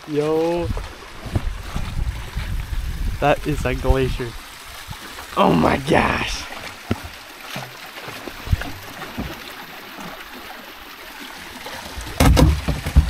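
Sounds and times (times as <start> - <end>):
water lapping around hull: 0.0 - 13.0
kayak bumping into ice: 0.8 - 2.6, 12.0 - 13.0
light knocks on kayak: 12.2 - 13.0.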